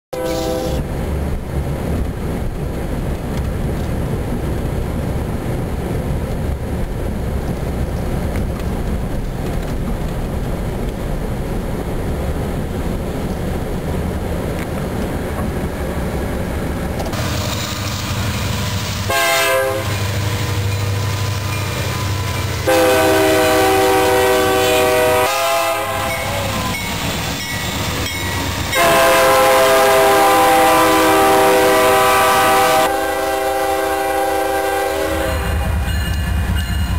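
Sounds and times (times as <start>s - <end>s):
train air horn blasts: 0.1s - 0.8s, 19.0s - 20.7s, 22.6s - 26.8s, 28.6s - 35.8s
freight train rolling past: 0.2s - 36.9s.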